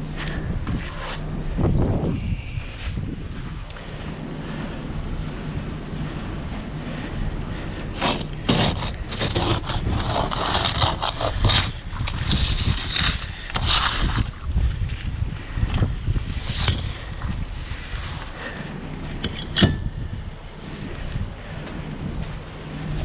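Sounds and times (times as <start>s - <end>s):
low steady rumble: 0.0s - 23.0s
ice scraper scraping windshield: 7.9s - 14.4s.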